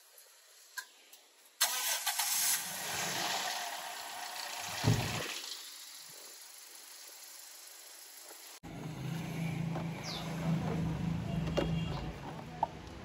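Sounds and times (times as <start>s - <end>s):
car engine starting and idling: 1.6s - 3.8s, 8.6s - 13.0s.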